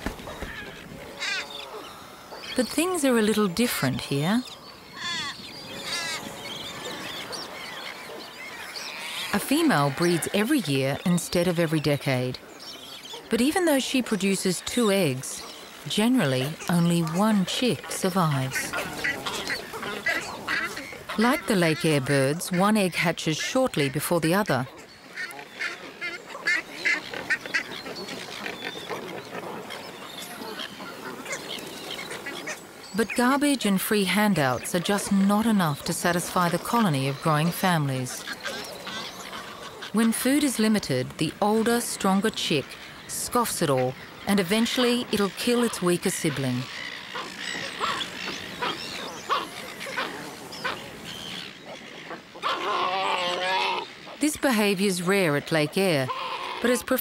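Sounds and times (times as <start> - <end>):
pelican chicks squawking: 0.0 - 57.0
pelican chicks squeaky cries: 43.8 - 54.1, 55.7 - 56.8.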